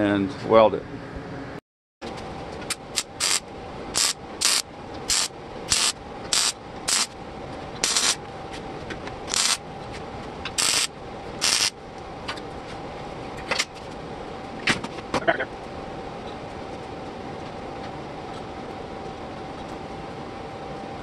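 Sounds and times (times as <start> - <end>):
welder hissing bursts: 3.0 - 3.4, 4.0 - 7.1, 7.8 - 8.2, 9.3 - 9.6, 10.6 - 11.7.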